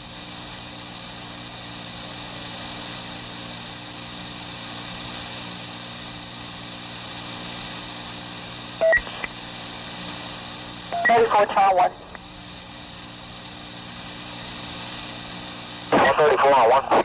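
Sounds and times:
radio hiss and low hum: 0:00.0 - 0:17.0
loud beep: 0:11.0 - 0:11.2.

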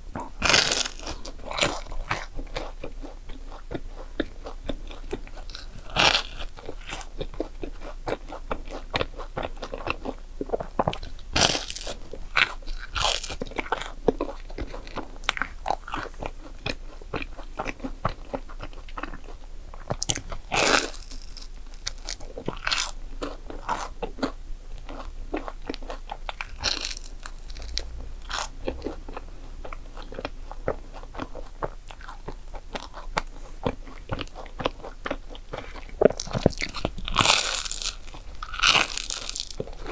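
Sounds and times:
crackly chewing: 0:00.0 - 0:39.9
loud crunches: 0:25.8 - 0:29.3, 0:35.6 - 0:39.9.

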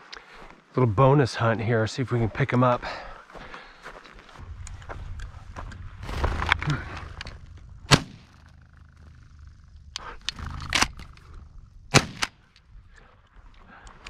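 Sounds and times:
shotgun shots: 0:07.9 - 0:08.3, 0:11.9 - 0:12.5
shotgun bolt clacks: 0:11.9 - 0:12.6.

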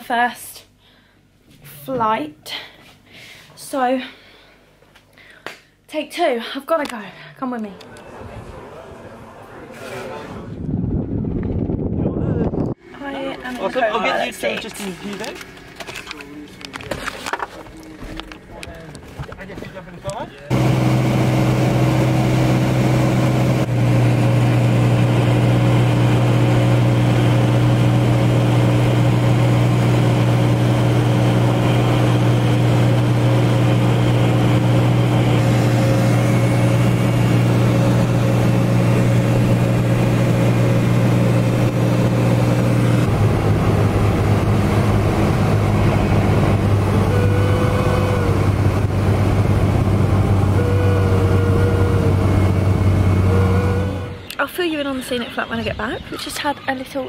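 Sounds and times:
aircraft engine and propeller drone: 0:20.5 - 0:54.4.

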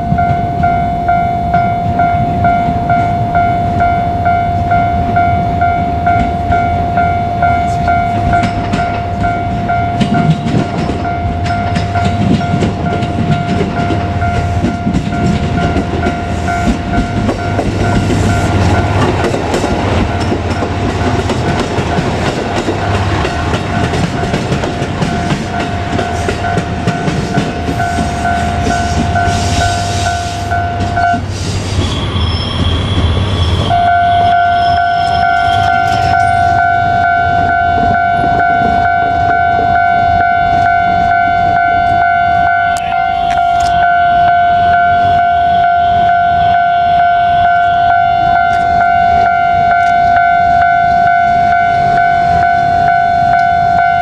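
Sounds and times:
level crossing warning bell: 0:00.0 - 0:31.3, 0:33.5 - 0:54.0
diesel railcar engine rumbling: 0:00.0 - 0:54.0
train wheels clacking over rail joints: 0:07.7 - 0:33.8
brief higher tone: 0:33.7 - 0:54.0.

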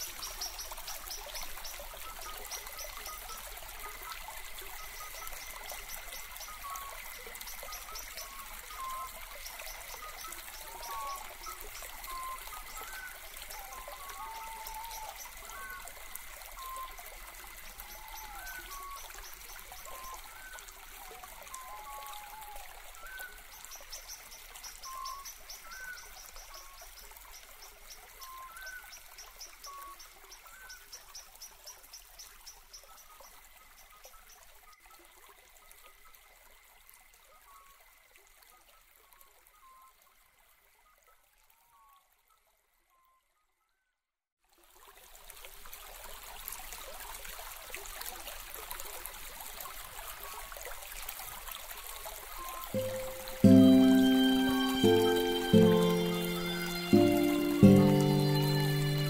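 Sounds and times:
running water: 0:00.0 - 0:41.5, 0:44.4 - 0:59.0
high bird trill: 0:52.8 - 0:59.0.

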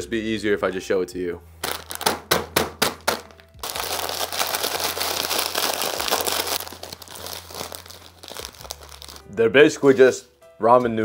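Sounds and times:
snack bag crinkling: 0:01.6 - 0:02.3, 0:02.9 - 0:09.2.

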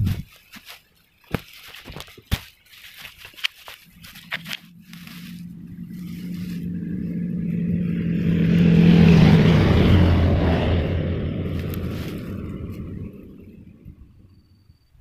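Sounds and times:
vehicle driving past: 0:04.7 - 0:14.4.

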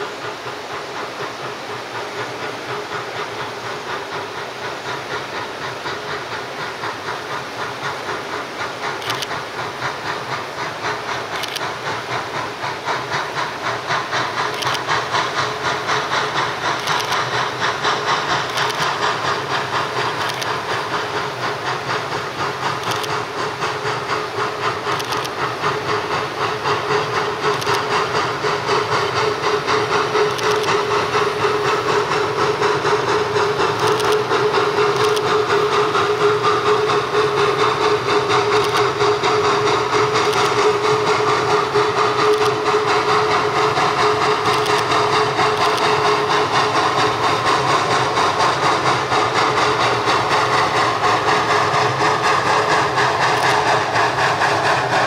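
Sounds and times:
hissing steam: 0:00.0 - 0:55.0
steam locomotive exhaust beat: 0:00.0 - 0:55.0
sharp wheel clicks: 0:09.0 - 0:09.3, 0:16.7 - 0:17.4, 0:18.4 - 0:19.0, 0:20.1 - 0:20.6, 0:22.7 - 0:23.2, 0:24.9 - 0:25.4, 0:30.2 - 0:30.9, 0:33.7 - 0:35.4, 0:38.5 - 0:39.0, 0:44.4 - 0:45.0.

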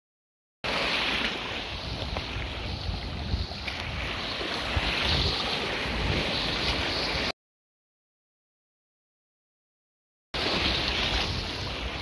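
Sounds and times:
waves breaking in shallow water: 0:00.6 - 0:07.3, 0:10.4 - 0:12.0
wind buffeting microphone: 0:01.5 - 0:07.3.

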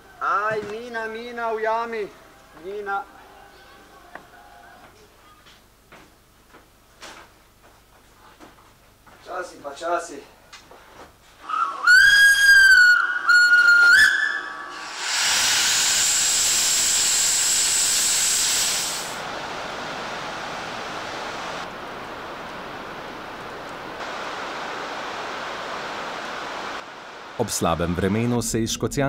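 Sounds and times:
steam locomotive whistle blasts: 0:11.4 - 0:19.1
steam hissing: 0:11.4 - 0:28.1.

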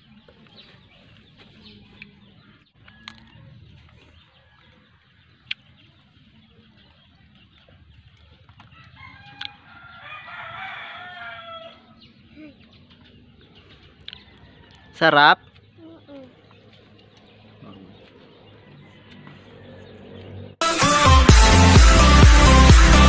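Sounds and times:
chickens clucking: 0:00.0 - 0:20.4
rooster crowing: 0:08.7 - 0:12.0, 0:14.1 - 0:15.1.

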